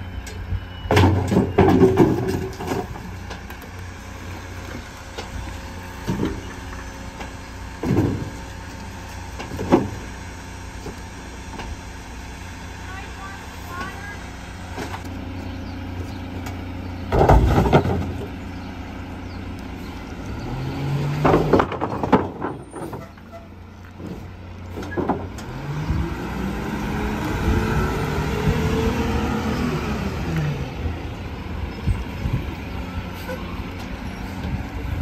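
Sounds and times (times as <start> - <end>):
garbage truck engine idling: 0.0 - 20.4
junk crashing into hopper: 0.9 - 3.2, 7.8 - 8.4, 17.1 - 18.3, 21.0 - 23.2
engine revving: 17.0 - 21.9, 25.1 - 35.0.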